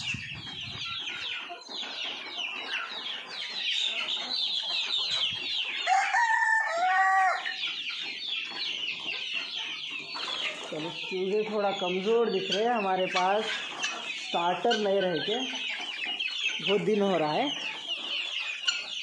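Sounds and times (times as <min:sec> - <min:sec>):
chicks peeping: 0:00.0 - 0:19.0
rooster crowing: 0:05.8 - 0:07.5.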